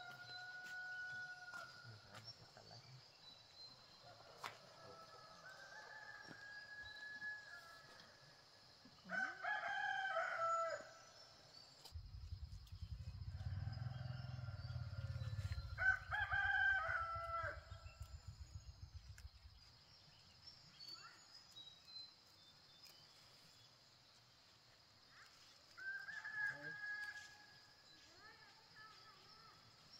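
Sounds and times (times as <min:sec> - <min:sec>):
low rumble: 0:12.0 - 0:16.4
rooster crowing: 0:13.4 - 0:17.7.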